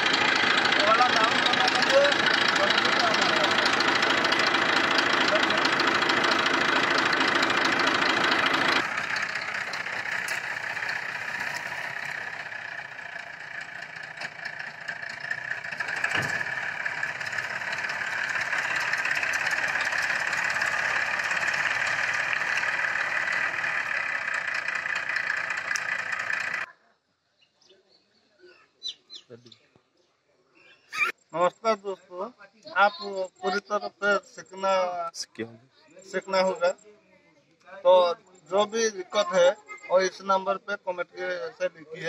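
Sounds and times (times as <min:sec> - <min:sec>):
tractor diesel engine running: 0:00.0 - 0:26.7.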